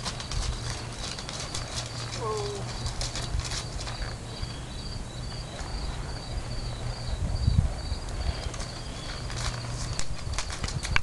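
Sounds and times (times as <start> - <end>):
horse hoof steps on grass: 0.0 - 4.2, 8.4 - 11.0
insects chirping: 0.0 - 10.9.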